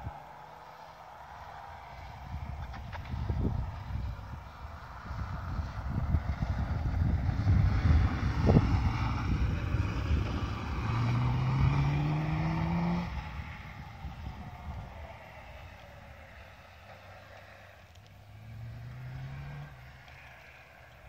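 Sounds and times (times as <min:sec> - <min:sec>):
wind buffeting microphone: 0:01.9 - 0:16.8
motorcycle engine revving: 0:02.3 - 0:16.6.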